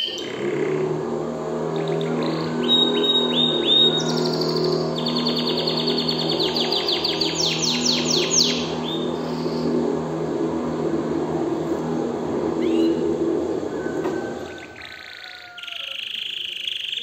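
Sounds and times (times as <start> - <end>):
steady low hum: 0.0 - 15.8
canary singing: 0.0 - 17.0.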